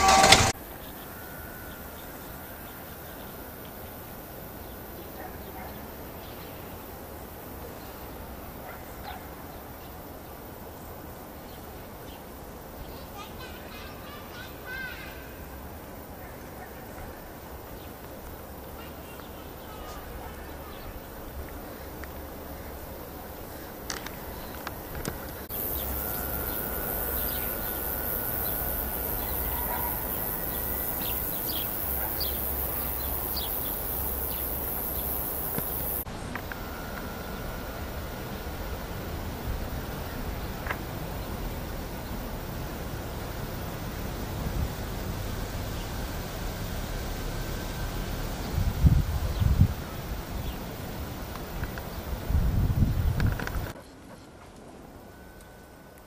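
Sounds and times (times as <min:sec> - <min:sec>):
faint steady high tone: 0:00.0 - 0:05.1, 0:18.7 - 0:40.6, 0:53.8 - 0:56.0
outdoor background noise: 0:00.0 - 0:56.0
distant dog barks: 0:05.1 - 0:06.0, 0:08.6 - 0:09.4, 0:16.2 - 0:17.1, 0:19.8 - 0:20.8, 0:27.8 - 0:36.0
steady hiss: 0:17.3 - 0:53.8
high chirps: 0:25.4 - 0:36.1.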